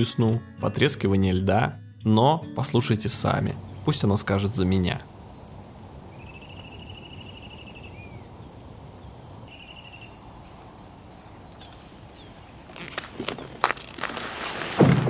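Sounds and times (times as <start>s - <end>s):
small songbirds trilling: 3.1s - 13.9s.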